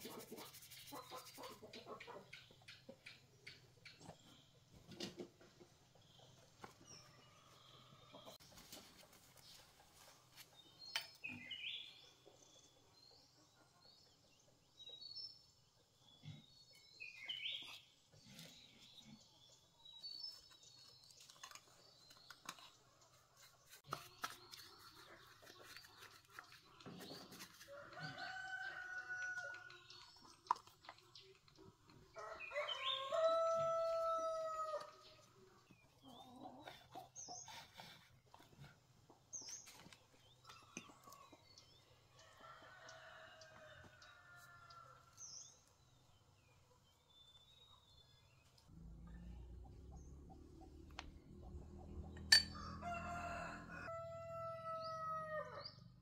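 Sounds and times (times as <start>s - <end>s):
rooster crowing: 28.0s - 29.5s, 32.2s - 34.9s, 52.5s - 55.6s.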